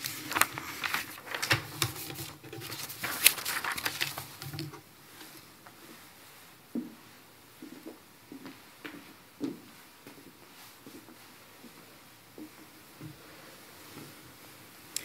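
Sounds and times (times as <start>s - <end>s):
paper rustling and crinkling: 0.0s - 5.5s.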